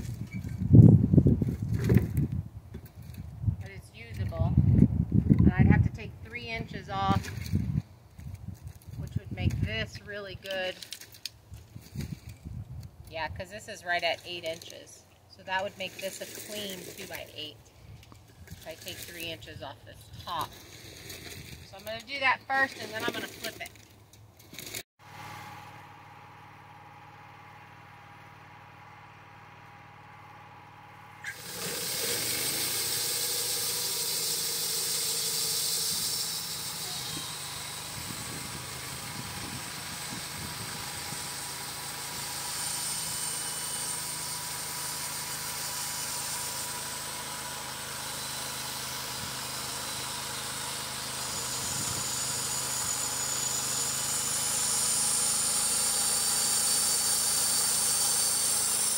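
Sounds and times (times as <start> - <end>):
saw blade cutting log: 13.5 - 14.8, 15.4 - 17.6, 18.3 - 26.0, 31.1 - 58.9
band sawmill running: 15.4 - 19.6, 20.3 - 58.9.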